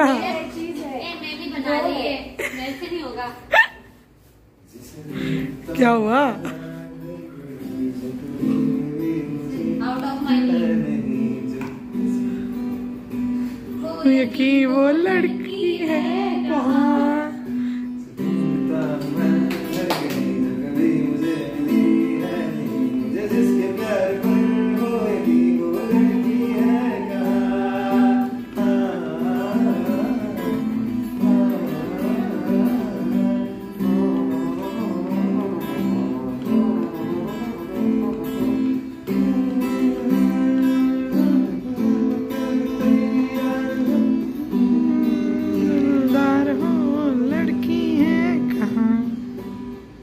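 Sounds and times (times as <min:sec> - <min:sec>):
acoustic guitar strumming: 0:05.0 - 0:50.0
person singing: 0:13.7 - 0:49.4.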